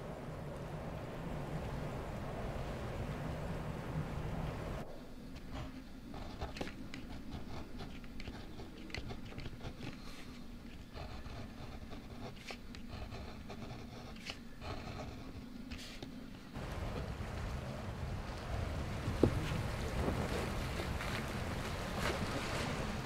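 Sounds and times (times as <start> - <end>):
low steady hum: 0.0 - 23.0
small clicks and light scraping: 6.2 - 10.9.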